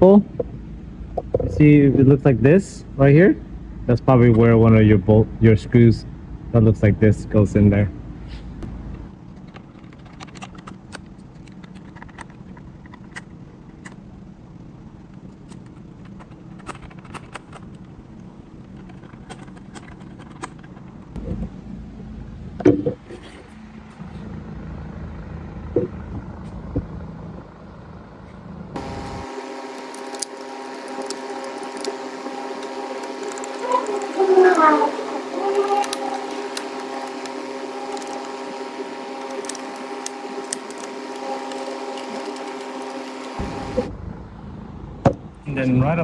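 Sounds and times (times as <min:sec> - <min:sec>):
steady low hum: 0:00.0 - 0:46.0
multi-tone buzz: 0:28.7 - 0:44.4.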